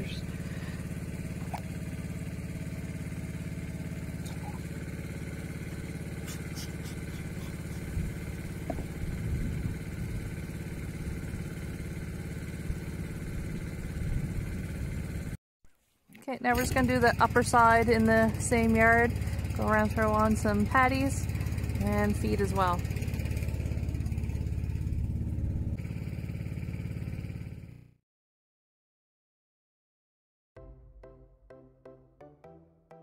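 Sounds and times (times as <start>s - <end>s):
pump humming: 0.0s - 14.9s, 16.5s - 26.3s
soft bumps: 8.0s - 9.4s.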